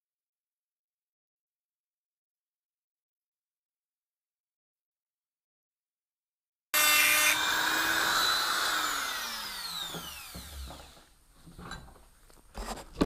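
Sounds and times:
drill grinding steel: 0:06.8 - 0:11.1
drill motor winding down: 0:06.8 - 0:11.1
drill knocking when set down: 0:06.8 - 0:11.7.

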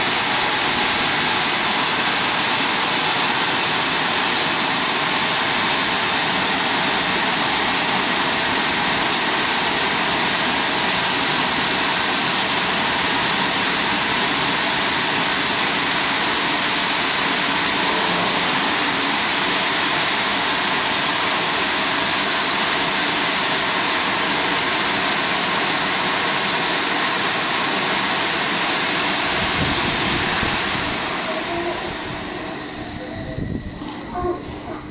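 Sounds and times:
car wash machine rushing: 0:00.0 - 0:34.9.

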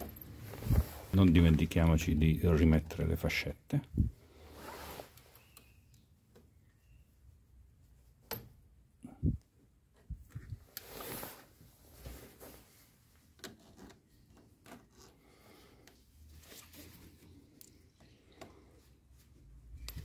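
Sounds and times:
scraping rustle: 0:00.0 - 0:01.7.

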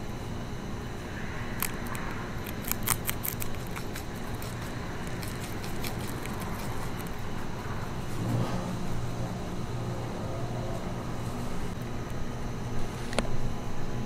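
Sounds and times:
low background hum: 0:00.0 - 0:14.0
rabbit crunching celery: 0:01.1 - 0:08.3.

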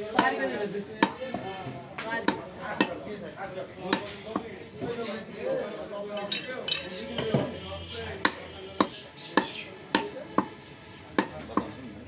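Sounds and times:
knife chopping meat on wood block: 0:00.1 - 0:00.4, 0:08.2 - 0:10.6, 0:11.2 - 0:11.8.

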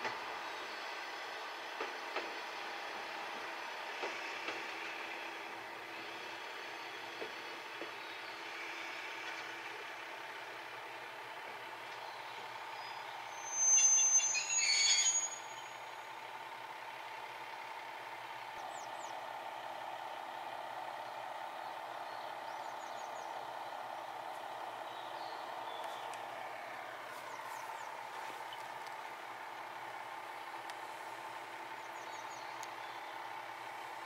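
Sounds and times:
distant diesel railcar hum: 0:00.0 - 0:34.0
faint bird chirps: 0:11.9 - 0:16.0, 0:31.8 - 0:33.2.

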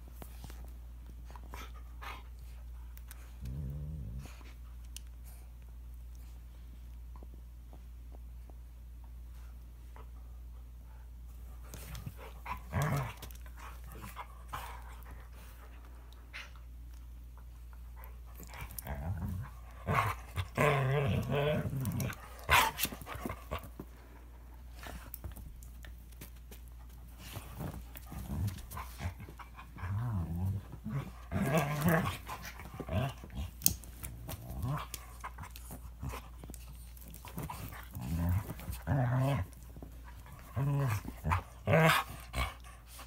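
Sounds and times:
dogs growling and snarling: 0:03.1 - 0:04.6, 0:11.8 - 0:15.4, 0:18.0 - 0:23.8, 0:27.2 - 0:43.0.

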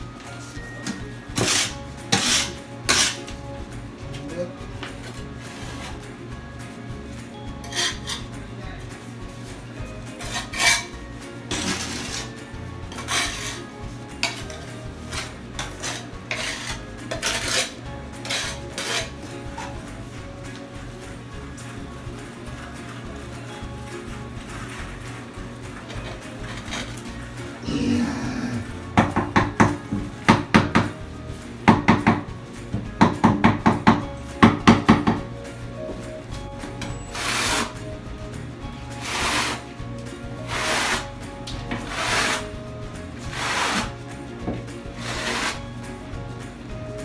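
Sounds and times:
trowel scraping adhesive on tile: 0:01.3 - 0:03.4, 0:07.7 - 0:08.4, 0:10.2 - 0:10.9, 0:11.5 - 0:19.2, 0:36.8 - 0:37.9, 0:39.0 - 0:39.7, 0:40.5 - 0:42.5, 0:43.2 - 0:44.0, 0:44.9 - 0:45.6
mallet tapping ceramic tile: 0:28.5 - 0:38.4.

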